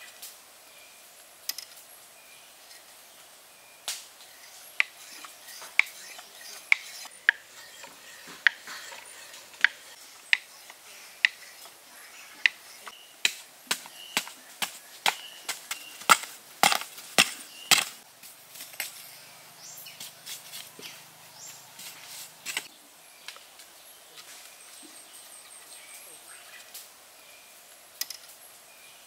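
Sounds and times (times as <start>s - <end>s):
bamboo parts clicking and knocking: 1.4s - 1.8s, 4.7s - 18.0s, 22.4s - 22.7s, 28.0s - 28.4s
wooden stick digging hard earth: 4.8s - 11.7s, 12.4s - 18.0s.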